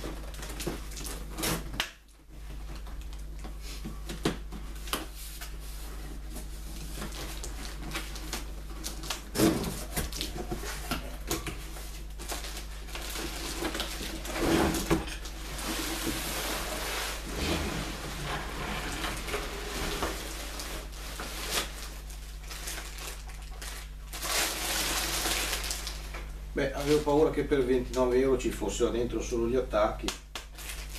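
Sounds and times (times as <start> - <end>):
low steady hum: 0.0 - 30.9
plastic packaging crinkling: 6.2 - 17.3, 17.9 - 28.2, 30.3 - 30.9.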